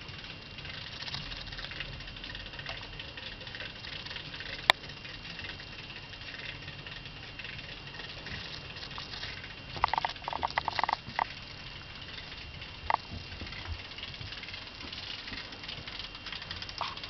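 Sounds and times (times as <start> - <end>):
plastic parts crackling and rattling: 0.6 - 11.4.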